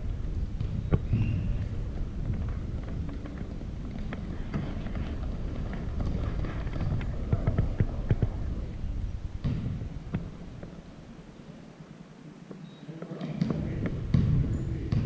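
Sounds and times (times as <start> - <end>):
players running on court: 0.0 - 10.8
basketball bouncing: 0.4 - 8.4, 9.4 - 10.7, 13.4 - 15.0.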